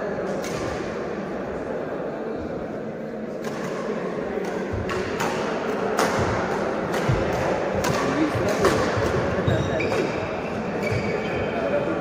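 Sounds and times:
large hall background noise: 0.0 - 12.0
rackets hitting shuttlecock: 3.4 - 11.2.

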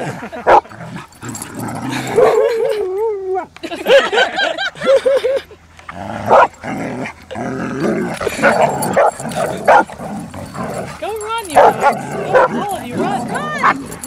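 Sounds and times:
dogs vocalizing in play: 0.0 - 2.7, 5.9 - 14.0.

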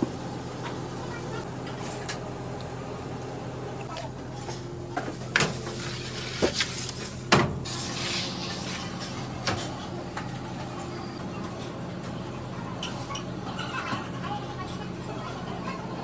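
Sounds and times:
metal tray scraping oven floor: 5.6 - 9.3.

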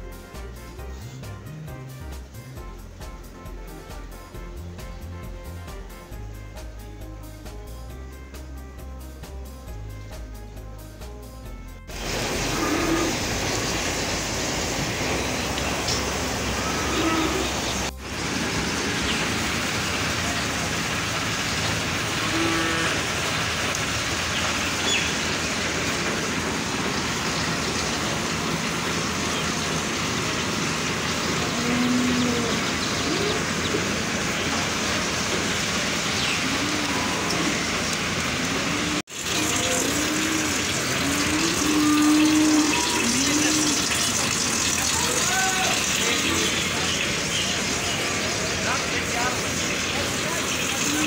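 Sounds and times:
cows mooing: 12.0 - 14.0, 16.3 - 17.9, 21.7 - 23.9, 31.1 - 34.9, 36.3 - 44.3.

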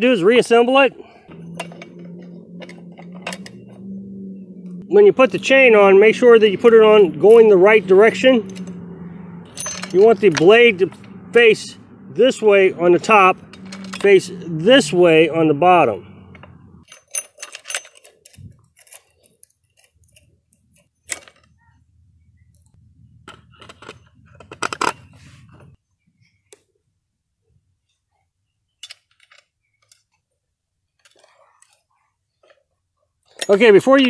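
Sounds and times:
metallic clicks and clinks: 1.3 - 3.9, 8.1 - 11.5, 13.3 - 14.3, 16.3 - 21.6, 33.2 - 33.9
rattling clicks: 1.3 - 11.5, 12.5 - 14.3, 16.2 - 21.6.

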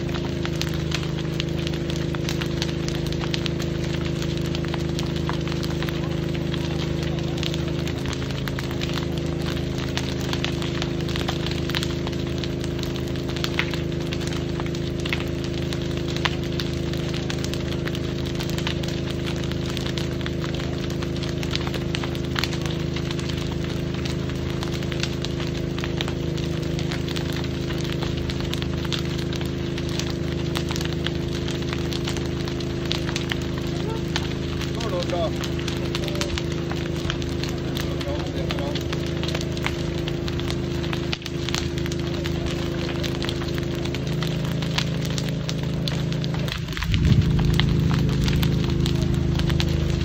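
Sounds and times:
fire crackling and popping: 0.0 - 50.0
steady low hum: 0.0 - 50.0.

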